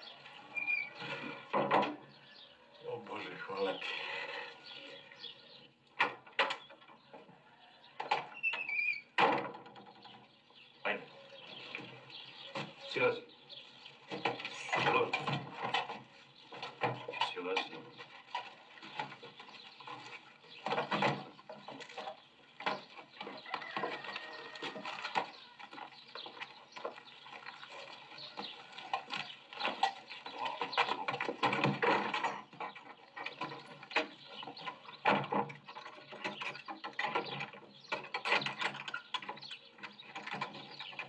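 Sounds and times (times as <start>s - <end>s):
objects clicking and rattling: 14.1s - 41.0s.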